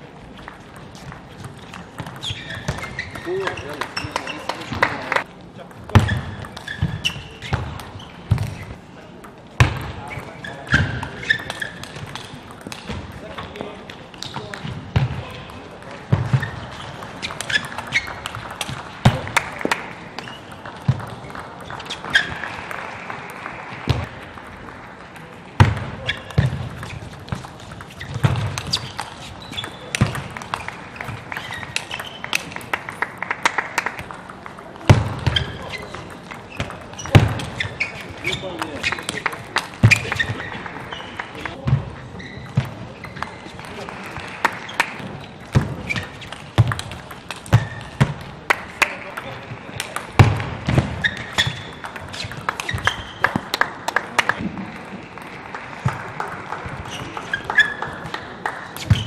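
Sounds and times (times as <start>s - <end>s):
shoe squeaks: 1.6s - 4.9s, 6.0s - 8.8s, 10.0s - 12.0s, 16.3s - 18.4s, 21.8s - 22.4s, 26.0s - 27.1s, 27.8s - 32.5s, 35.2s - 43.6s, 45.8s - 46.4s, 47.5s - 47.9s, 51.0s - 53.3s, 56.8s - 58.0s, 58.8s - 59.0s.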